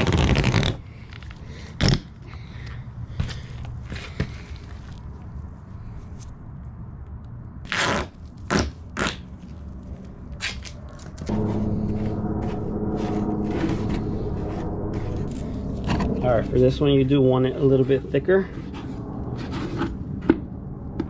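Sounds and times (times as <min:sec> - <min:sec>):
duct tape ripping off roll: 0:00.0 - 0:00.8, 0:01.8 - 0:02.1, 0:07.7 - 0:09.4
steady low hum: 0:09.6 - 0:21.0.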